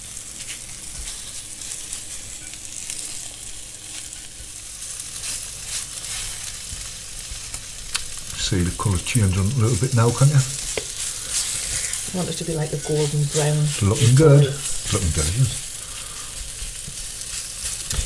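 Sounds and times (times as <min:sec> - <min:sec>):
beef sizzling in a pan: 0:00.0 - 0:18.0
wooden spatula stirring: 0:08.8 - 0:18.0.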